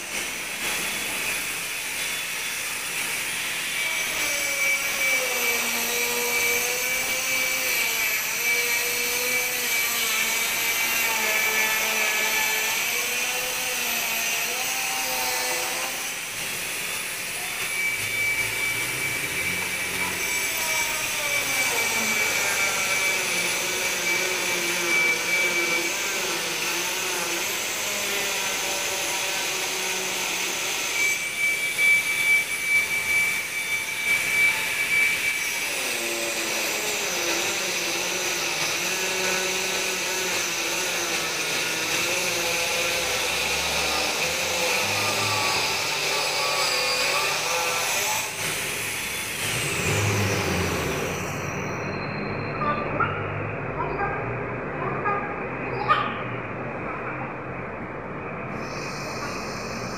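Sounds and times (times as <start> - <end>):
high thin tone: 15.6 - 21.0, 49.8 - 54.2, 58.5 - 59.9.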